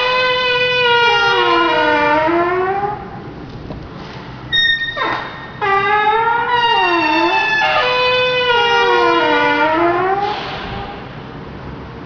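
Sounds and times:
gliding siren-like tones: 4.6 - 11.1.

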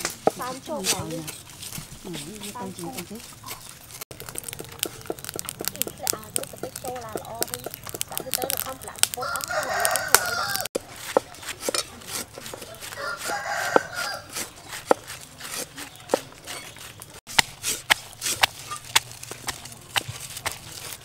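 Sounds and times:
food preparation clicks and knocks: 2.9 - 12.7
stone pestle pounding in mortar: 4.1 - 16.3
rooster crowing: 9.1 - 10.7, 12.8 - 14.4.

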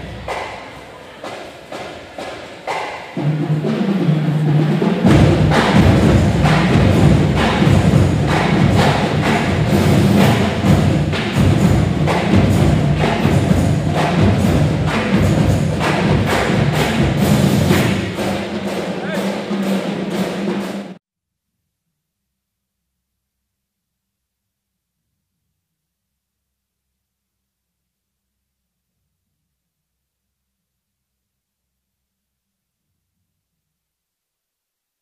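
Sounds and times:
heavy drum beat: 2.2 - 21.0.

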